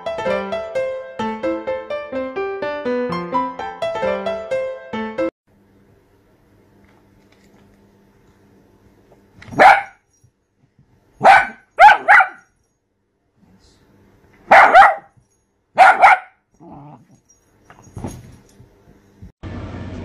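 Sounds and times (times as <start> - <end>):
dog barking: 9.5 - 10.0, 11.2 - 12.5, 14.5 - 15.1, 15.8 - 16.4.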